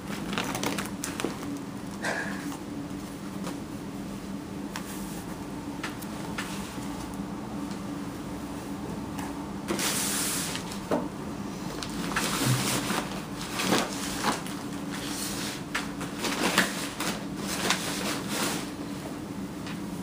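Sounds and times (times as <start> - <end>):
plastic packaging crinkling: 0.0 - 1.7.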